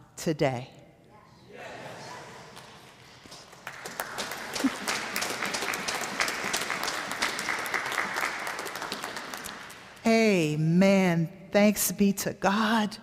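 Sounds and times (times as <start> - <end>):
congregation applauding: 2.4 - 10.1.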